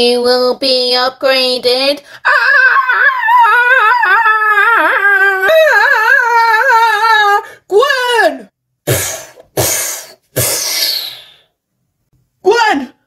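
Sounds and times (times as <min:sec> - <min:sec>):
person screaming: 0:02.2 - 0:07.4.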